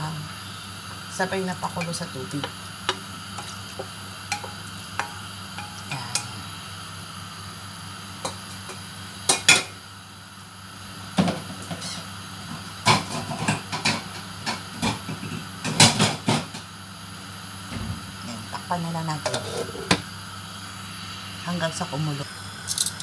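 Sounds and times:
steady low hum: 0:00.0 - 0:10.8
metal bowl clattering on grate: 0:01.8 - 0:06.4
spoon clinking in metal bowl: 0:04.3 - 0:06.4.

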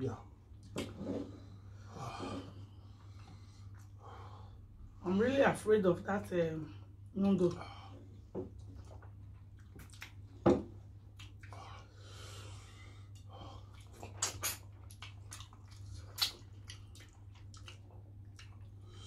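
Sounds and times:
low steady hum: 0:00.0 - 0:19.0
chewing: 0:08.6 - 0:10.2, 0:13.1 - 0:19.0
lip smacks: 0:08.8 - 0:10.2, 0:13.7 - 0:18.8.

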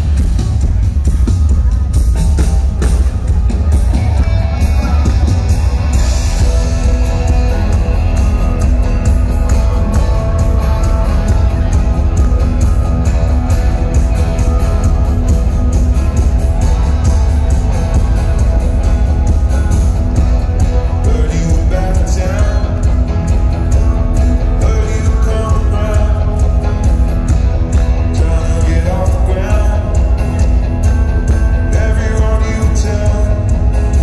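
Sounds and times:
acoustic guitar: 0:00.0 - 0:34.0
live band music: 0:00.0 - 0:34.0.

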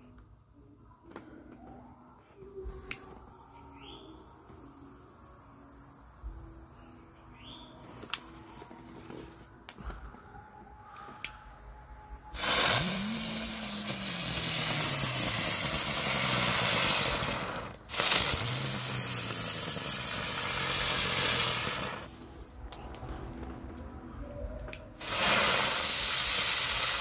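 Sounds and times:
spinning firework hissing and whirring: 0:12.3 - 0:22.3, 0:24.9 - 0:27.0.

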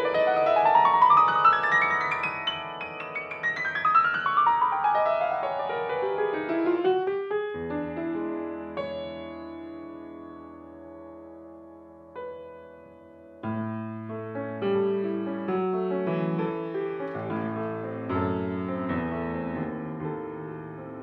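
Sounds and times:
grand piano playing classical: 0:00.0 - 0:21.0.

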